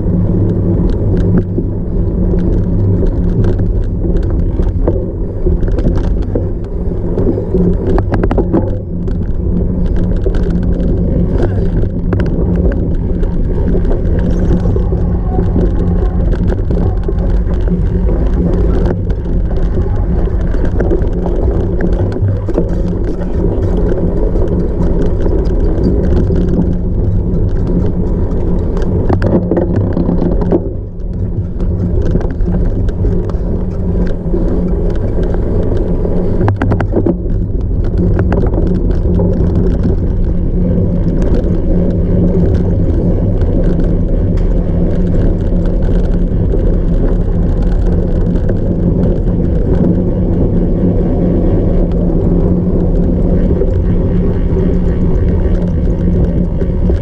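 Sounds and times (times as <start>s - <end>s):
bike rattling over rough ground: 0.0s - 57.0s
wind on microphone: 0.0s - 57.0s.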